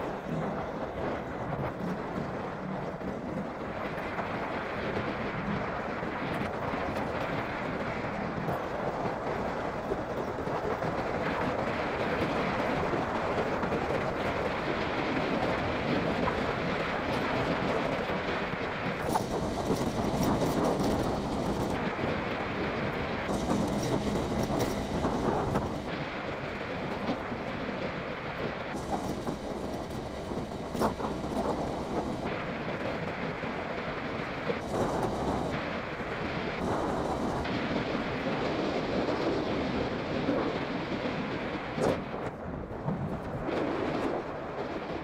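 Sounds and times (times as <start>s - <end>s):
wind rushing: 3.6s - 45.0s
motorcycle engine running: 23.3s - 26.0s.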